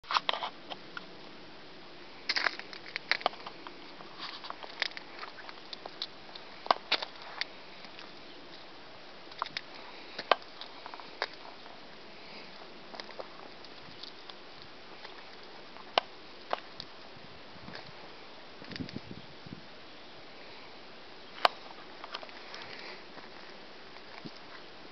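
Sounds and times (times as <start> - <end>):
faint steady hiss: 0.0 - 24.9
sharp clicks and crackles: 2.3 - 11.8, 12.4 - 17.1, 18.6 - 19.1.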